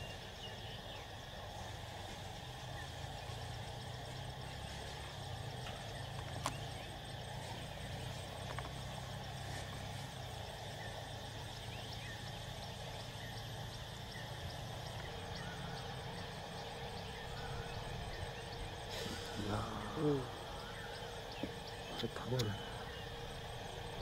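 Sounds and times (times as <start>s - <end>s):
steady low hum: 0.0s - 24.0s
light regular ticking: 3.7s - 24.0s.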